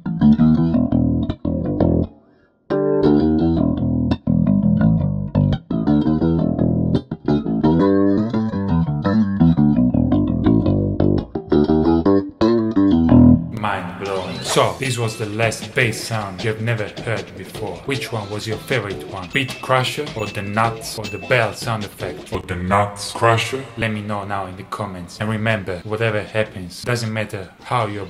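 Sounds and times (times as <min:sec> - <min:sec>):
electric bass with flanger effect: 0:00.0 - 0:02.1, 0:02.9 - 0:13.6.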